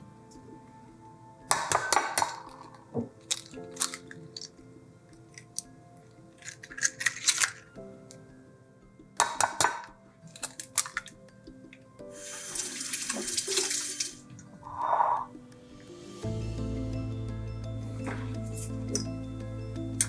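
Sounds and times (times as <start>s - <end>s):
soft background music: 0.0s - 20.0s
rushing liquid: 12.2s - 14.3s.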